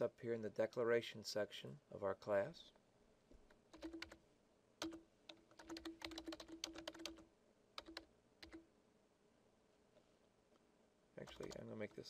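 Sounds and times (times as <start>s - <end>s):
typing on computer keyboard: 3.7s - 4.2s, 4.8s - 8.6s, 11.3s - 11.6s.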